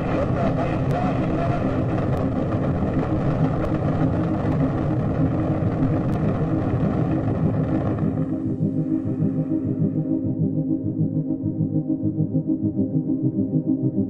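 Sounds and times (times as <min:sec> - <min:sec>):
rocket engine rumbling: 0:00.0 - 0:10.2
low steady hum: 0:00.0 - 0:14.0.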